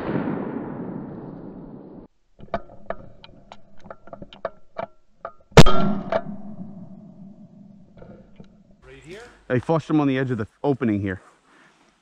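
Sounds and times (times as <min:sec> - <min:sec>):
shotgun shot: 0:00.0 - 0:02.1, 0:05.6 - 0:06.4.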